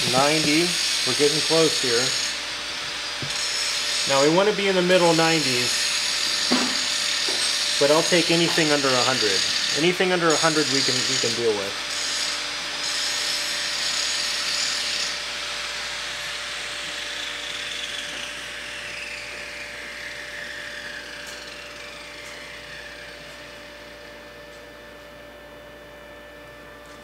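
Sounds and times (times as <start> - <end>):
electric motor whirring down: 0.0 - 15.0, 17.3 - 24.3.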